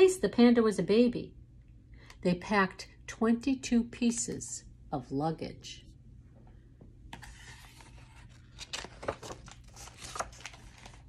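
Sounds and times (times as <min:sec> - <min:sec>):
book pages turning: 0:07.1 - 0:11.0.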